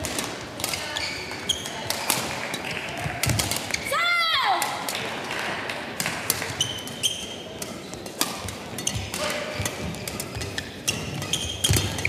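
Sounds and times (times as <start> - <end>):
shoe squeaks: 0.8 - 1.8, 6.6 - 12.0
racket hitting shuttlecock: 3.2 - 3.8, 6.0 - 12.0.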